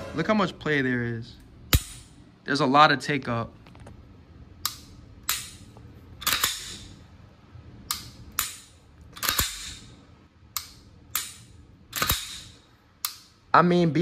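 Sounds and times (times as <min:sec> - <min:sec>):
pistol slide snapping forward: 0:04.6 - 0:05.6, 0:06.2 - 0:06.9, 0:07.9 - 0:09.8, 0:10.6 - 0:13.2.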